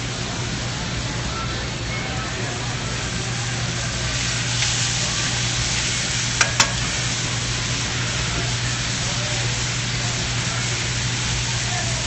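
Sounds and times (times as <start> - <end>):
onions sizzling in a pan: 1.8 - 12.0
tongs clicking on pan: 6.4 - 7.0.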